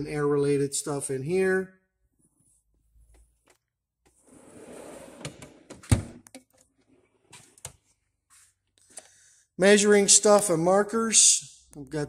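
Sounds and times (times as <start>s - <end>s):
metal drawer rolling open: 4.3s - 5.7s.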